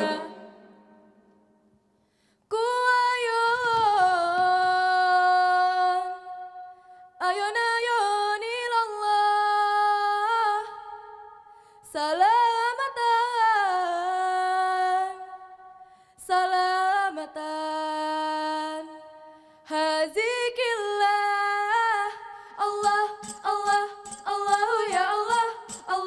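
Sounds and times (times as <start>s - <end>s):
woman singing unaccompanied: 0.0s - 0.7s, 2.5s - 6.4s, 19.7s - 26.0s.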